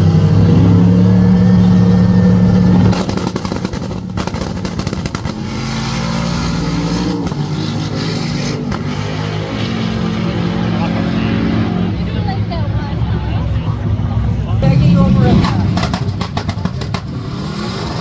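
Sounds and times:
crackling engine and exhaust: 0.0 - 18.0
drag racing engines droning: 0.0 - 18.0.

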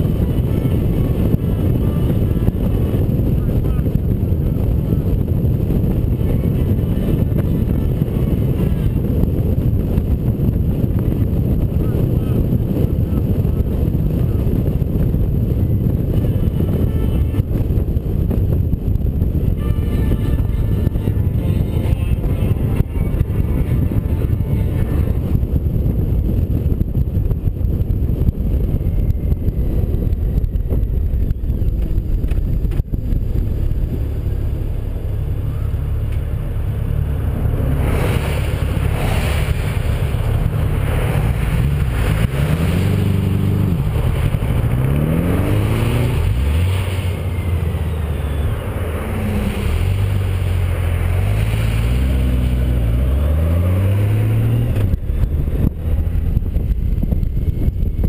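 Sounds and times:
wind rush over microphone: 0.0 - 58.0
motorcycle engine running: 54.2 - 58.0.

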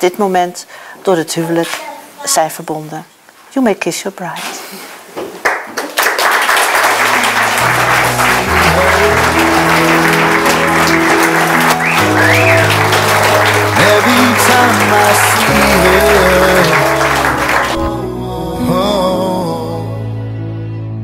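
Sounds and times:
crowd applauding: 5.4 - 18.0
music with sustained notes: 7.0 - 21.0.

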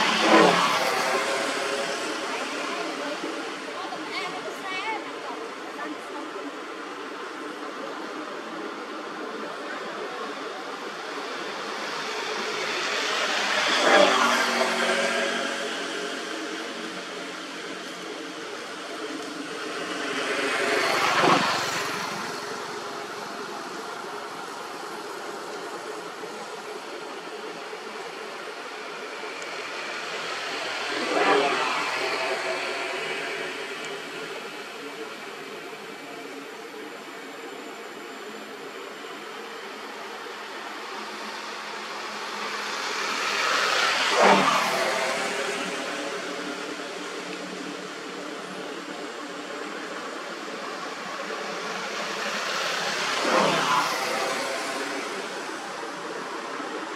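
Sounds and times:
vehicle passing by: 0.0 - 3.6, 12.3 - 17.1, 19.7 - 22.8, 29.3 - 34.3, 42.6 - 47.3, 52.1 - 55.8.

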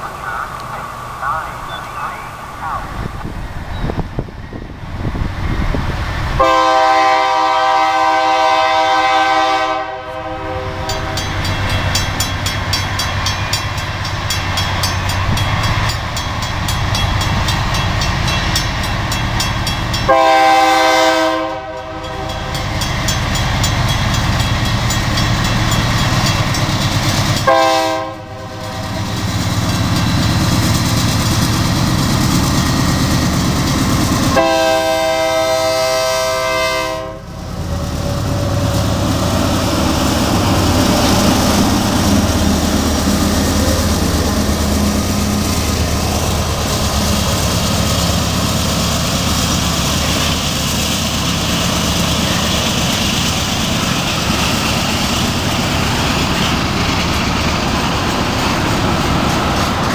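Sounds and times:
diesel locomotive engine rumble: 0.0 - 59.9
locomotive air horn blasts: 6.4 - 10.9, 20.1 - 22.6, 27.4 - 28.9, 34.3 - 37.3.

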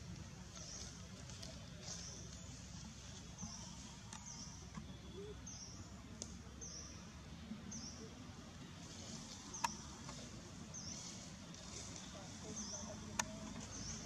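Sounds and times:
bird chirping: 1.8 - 8.1
faint clicks: 6.1 - 6.5, 9.2 - 10.3, 13.1 - 14.0.

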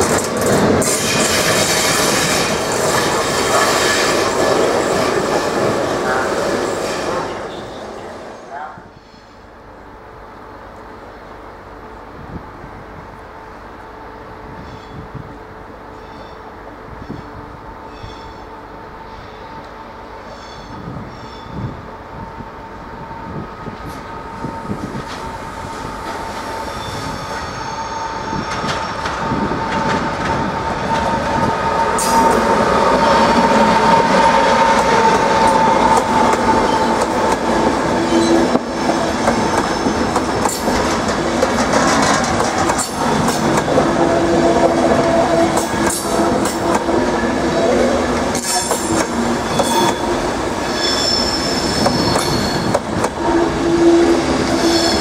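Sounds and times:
electric locomotive whine: 0.0 - 55.0
train wheels squealing: 14.6 - 15.1, 15.9 - 17.3, 17.9 - 19.6, 20.2 - 21.8, 26.4 - 29.5, 38.0 - 40.6, 49.4 - 55.0
wheels clicking over rail joints: 38.5 - 43.9.

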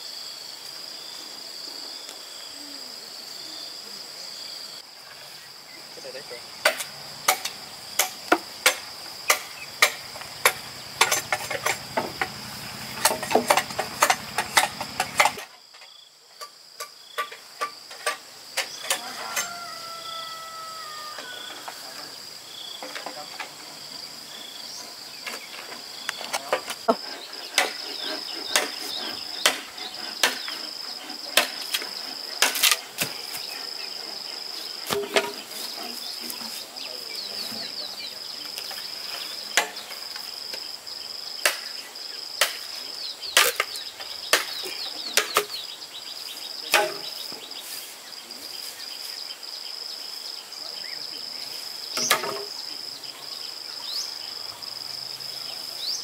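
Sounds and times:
high insect trilling: 17.0 - 41.3.

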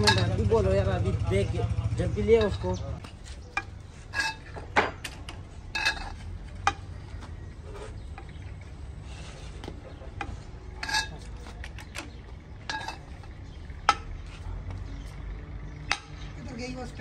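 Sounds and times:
metal tools clinking: 0.0 - 0.6, 2.2 - 6.9, 10.2 - 15.2.

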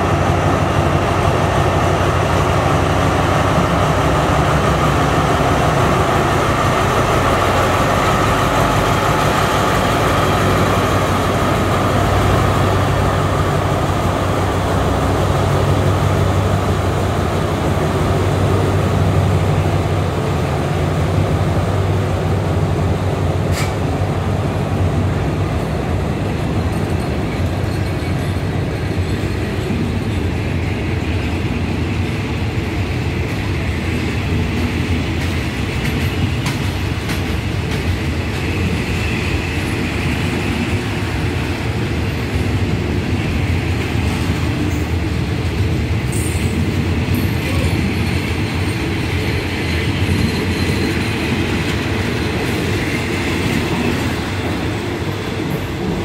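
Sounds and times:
diesel locomotive engine humming: 0.0 - 56.0
train coaches rolling on rails: 0.0 - 56.0.

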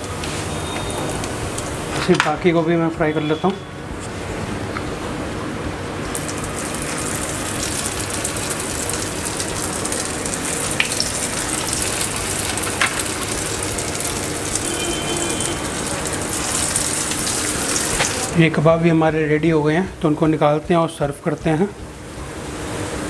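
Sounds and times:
food sizzling in hot oil: 6.1 - 18.4.

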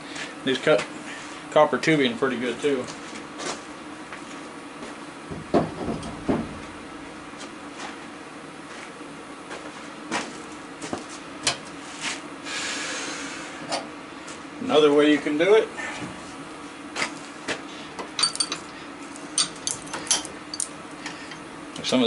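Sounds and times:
steady low hum: 0.0 - 22.0
tools and metal clattering: 18.1 - 21.4.

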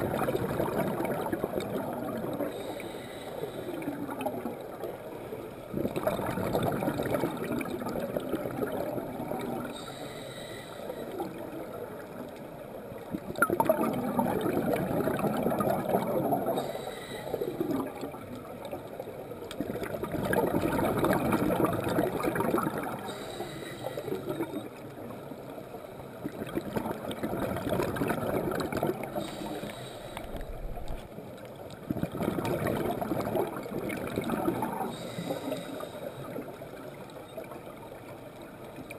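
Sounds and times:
exhaled bubbles gurgling underwater: 0.0 - 38.9
regulator inhalation hiss: 2.5 - 3.8, 9.8 - 11.2, 16.6 - 17.7, 23.1 - 24.5, 29.2 - 30.5, 34.9 - 36.3.

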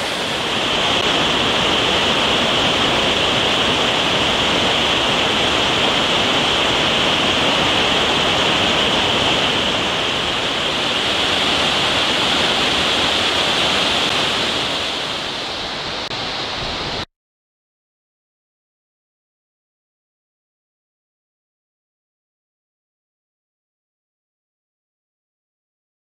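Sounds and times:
mountain stream rushing: 0.0 - 17.1.

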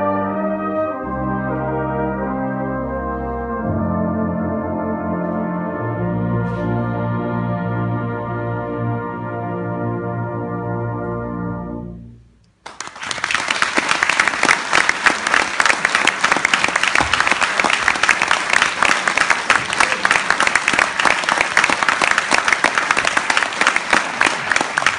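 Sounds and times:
audience applauding: 12.6 - 24.9.

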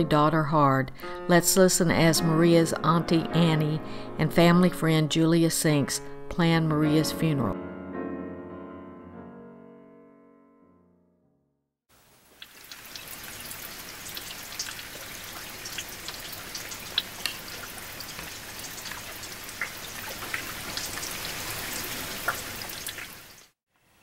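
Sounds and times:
steady rain: 11.9 - 23.5.

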